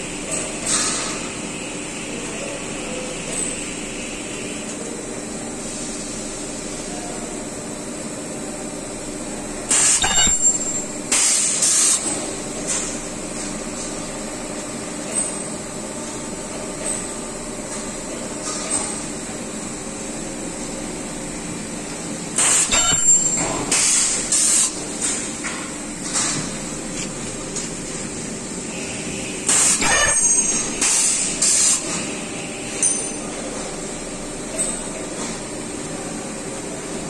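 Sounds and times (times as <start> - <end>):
welding machine hissing bursts: 11.1 - 12.0, 23.7 - 24.8, 29.5 - 30.0, 30.7 - 31.9.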